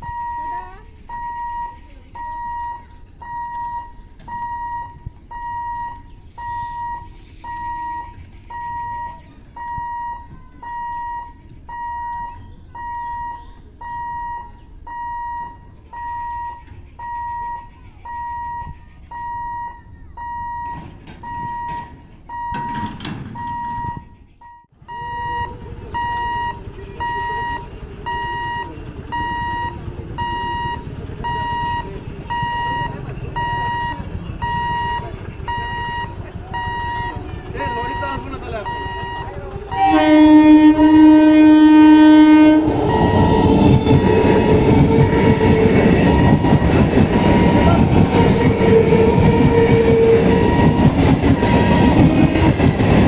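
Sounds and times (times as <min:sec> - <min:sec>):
warning buzzer beeping: 0:00.0 - 0:52.5
rushing noise: 0:40.6 - 0:53.0.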